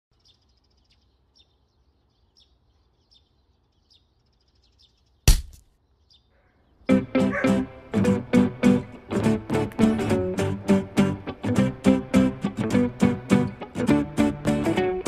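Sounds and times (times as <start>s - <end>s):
small bird chirping: 0.1s - 7.5s
sharp thump: 5.3s - 5.6s.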